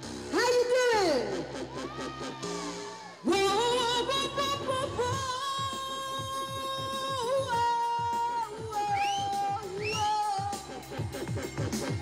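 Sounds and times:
backing music with steady beat: 0.0s - 12.0s
woman singing into microphone: 3.2s - 10.8s.

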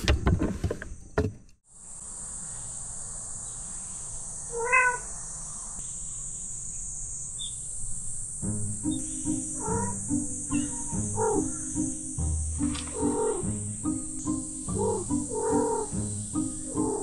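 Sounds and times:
steady high-pitched hiss: 1.6s - 17.0s
cat meowing: 4.5s - 5.1s, 9.6s - 10.0s, 10.6s - 11.6s, 13.0s - 13.5s, 14.8s - 16.0s.

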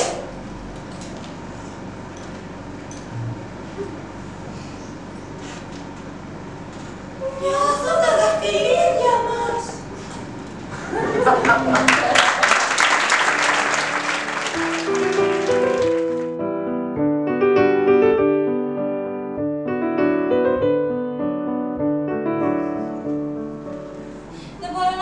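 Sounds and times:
audience applause: 11.2s - 16.3s
solo piano music: 13.3s - 24.3s.

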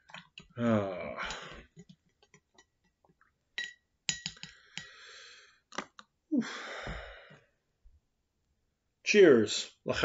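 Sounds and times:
spoon clinking against ceramic mug: 3.6s - 4.9s
breathy sigh: 6.3s - 7.4s.

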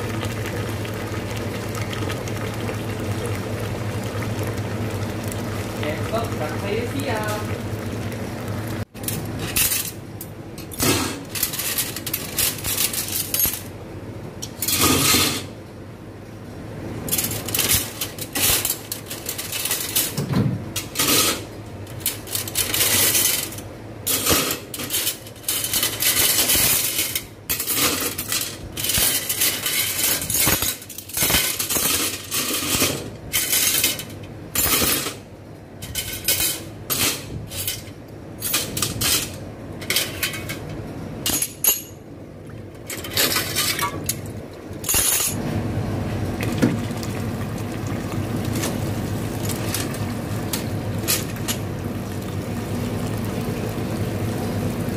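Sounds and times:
metal cutlery clinking: 44.8s - 45.4s.

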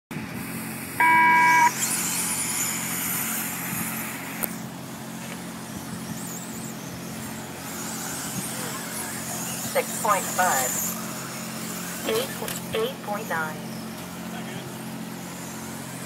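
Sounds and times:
electronic beep: 1.0s - 1.9s
rc car motors whining: 1.0s - 16.0s.

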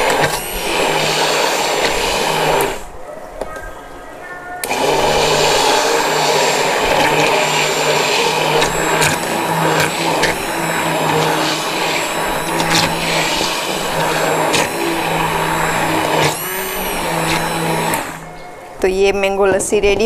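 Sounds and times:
electric hand blender running: 0.0s - 2.9s, 4.6s - 18.3s.

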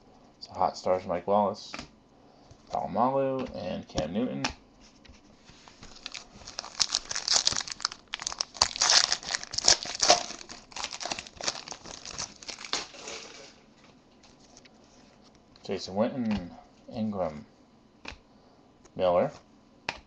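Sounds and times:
foil wrapper tearing and crinkling: 5.8s - 13.6s.

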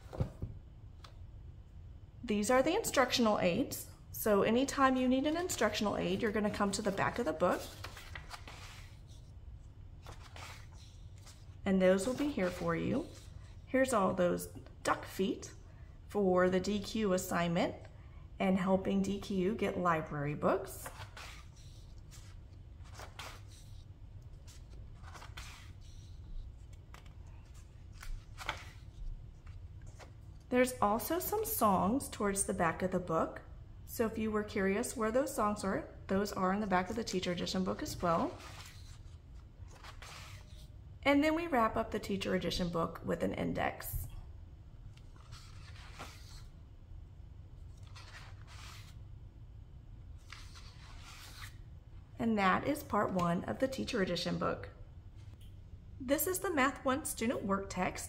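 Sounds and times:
book pages turning: 0.0s - 1.2s, 5.2s - 13.6s, 20.7s - 30.5s, 37.0s - 40.8s, 44.8s - 46.6s, 47.6s - 49.1s, 50.1s - 51.6s.

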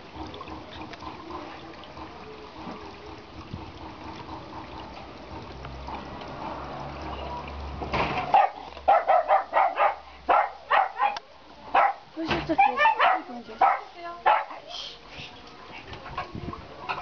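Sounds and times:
dog barking: 8.3s - 14.6s.

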